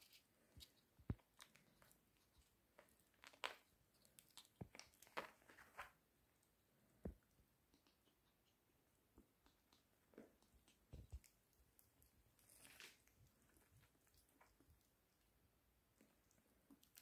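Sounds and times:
ferret gnawing a chew stick: 16.1 - 17.0.

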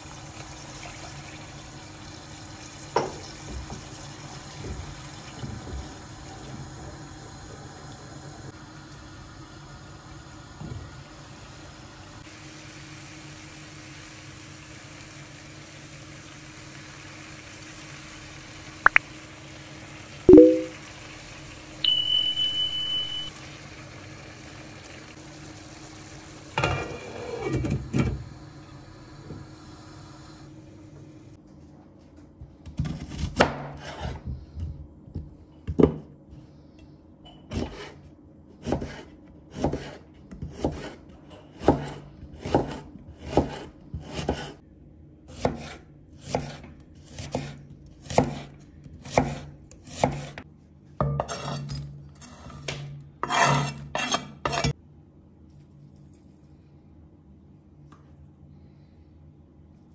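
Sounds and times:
high steady beep: 20.3 - 20.7, 21.8 - 23.3
knife slicing onion on board: 32.6 - 34.4, 37.5 - 44.6, 45.3 - 50.4, 51.2 - 54.8.

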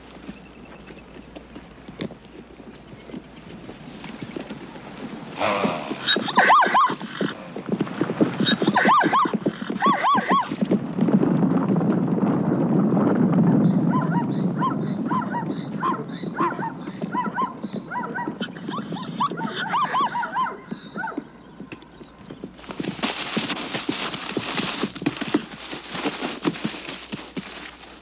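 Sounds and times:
hooves thudding on dry ground: 0.0 - 28.0
short high animal cries: 5.4 - 7.0.

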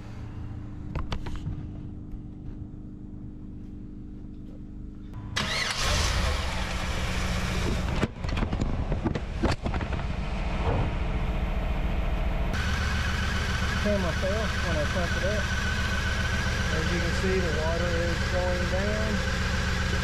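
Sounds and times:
car engine starting and running: 5.2 - 20.0.

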